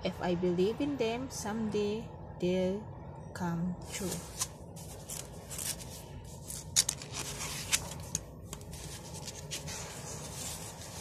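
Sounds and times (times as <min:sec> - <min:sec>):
paper rustling and scraping: 0:03.9 - 0:11.0
paper clicks and crinkles: 0:04.0 - 0:11.0.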